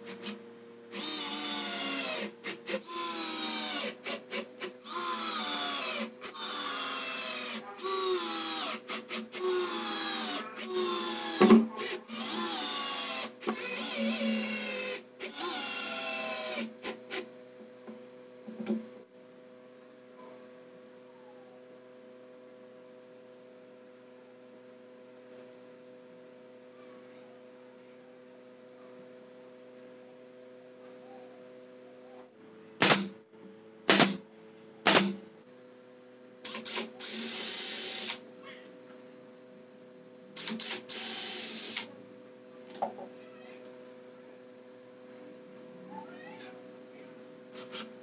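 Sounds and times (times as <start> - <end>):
electric screwdriver motor whining: 0.1 - 17.2, 36.5 - 38.2, 40.4 - 41.9
power tool bursts: 0.1 - 17.3, 32.8 - 33.1, 33.9 - 34.2, 36.4 - 38.2, 40.4 - 41.9, 47.5 - 48.0.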